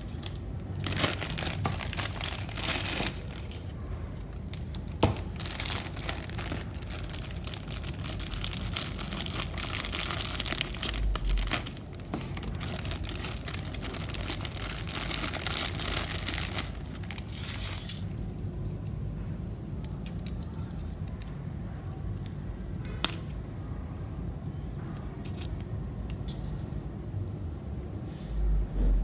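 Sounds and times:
plastic bags crinkling: 0.0s - 18.2s.

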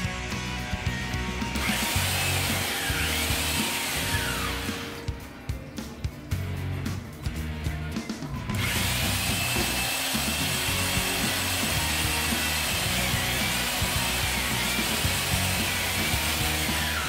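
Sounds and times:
high motor whine: 1.2s - 5.1s, 8.5s - 17.0s.

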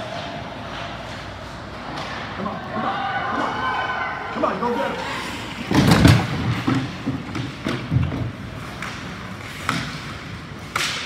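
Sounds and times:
sticks and puck clacking: 0.0s - 2.5s, 5.7s - 11.0s
thud against rink boards: 5.6s - 11.0s.

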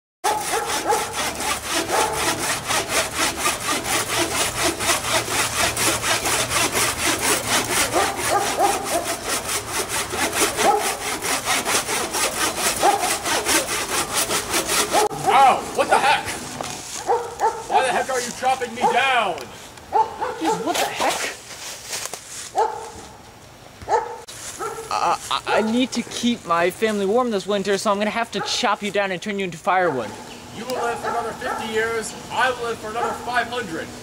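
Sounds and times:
hand saw cutting tree trunk: 0.2s - 19.2s, 20.4s - 22.2s, 30.6s - 33.8s
saw blade squeaking in wood: 0.3s - 15.9s.

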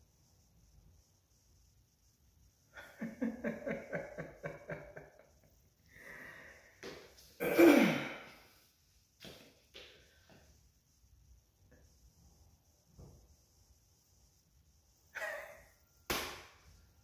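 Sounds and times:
man laughing: 2.8s - 5.4s, 15.2s - 15.6s.

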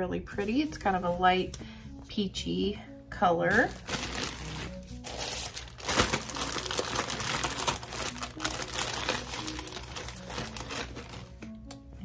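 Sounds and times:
packaging crinkling and rustling: 3.5s - 11.5s.

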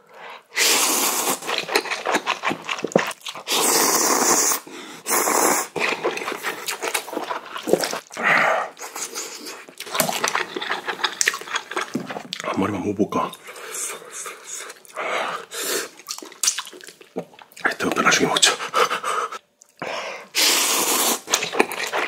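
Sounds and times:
man slurping noodles: 0.5s - 8.0s, 20.3s - 22.0s
wet chewing: 1.3s - 3.6s, 5.3s - 8.2s, 8.8s - 12.6s, 15.8s - 17.8s, 20.9s - 22.0s.

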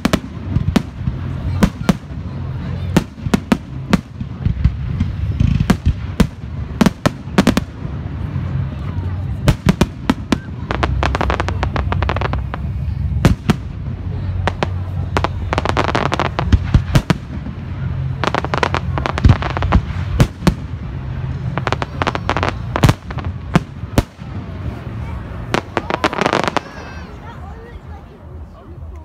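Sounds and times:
steady low rumble: 0.0s - 28.9s.

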